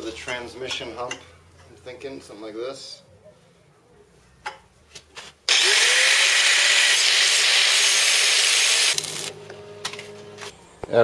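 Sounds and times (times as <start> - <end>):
angle grinder cutting metal: 5.5 - 9.4.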